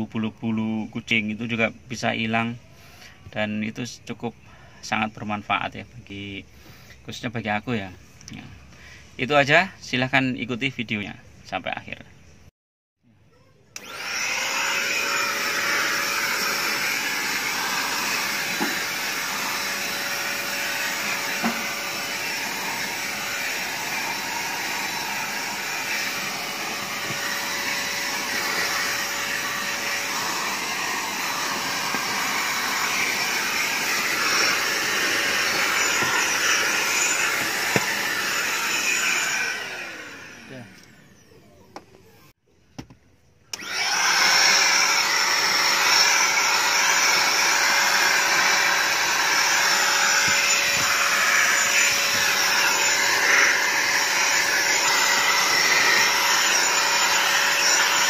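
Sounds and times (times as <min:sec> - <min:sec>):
handheld vacuum cleaner running: 0:13.8 - 0:41.3, 0:43.5 - 0:58.0.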